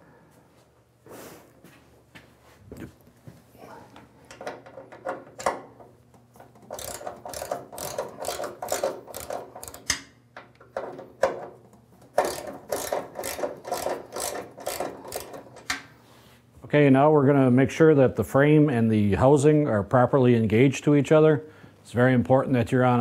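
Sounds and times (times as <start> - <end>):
socket ratchet clicking: 6.6 - 10.1, 12.1 - 15.8.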